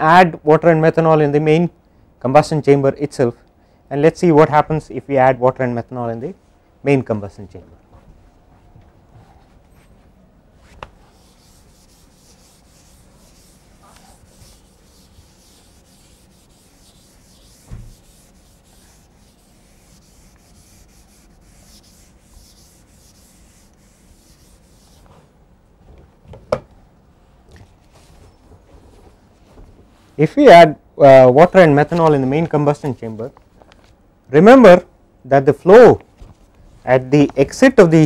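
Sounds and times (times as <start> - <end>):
scratching and rubbing: 10.6 - 25.3.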